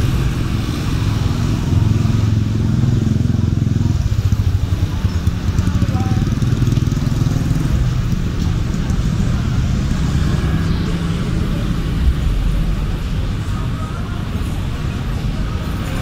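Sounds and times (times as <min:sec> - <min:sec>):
motorbike and car engines: 0:00.0 - 0:16.0.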